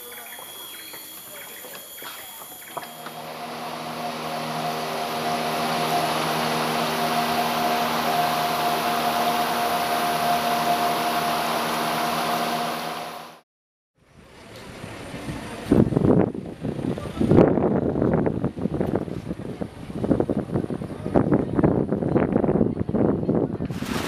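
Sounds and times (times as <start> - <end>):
boat motor running: 0.2 - 13.4.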